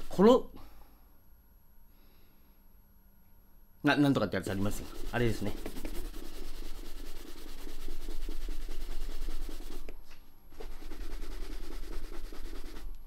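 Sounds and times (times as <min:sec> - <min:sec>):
shoe brush on leather boot: 0:04.5 - 0:09.8, 0:10.6 - 0:12.9.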